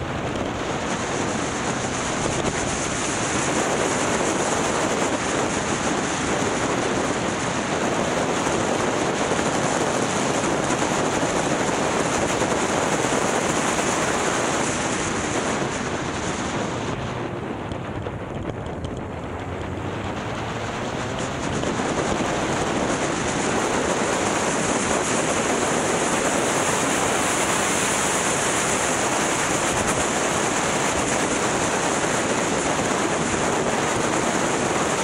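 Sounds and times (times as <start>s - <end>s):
motorcycle engine: 0.0s - 34.5s
road noise: 0.0s - 35.0s
wind rushing over microphone: 0.0s - 35.0s.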